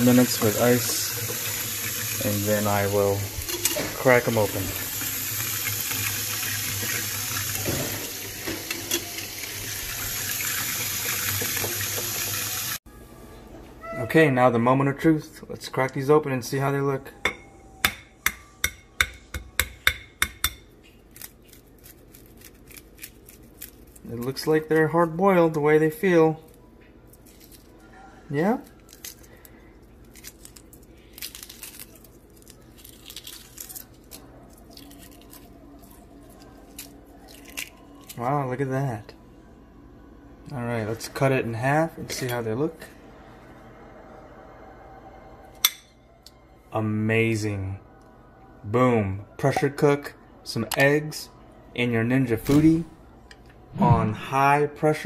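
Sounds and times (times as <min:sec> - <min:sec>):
eggshell cracking and peeling: 0:30.0 - 0:36.0, 0:36.7 - 0:38.2.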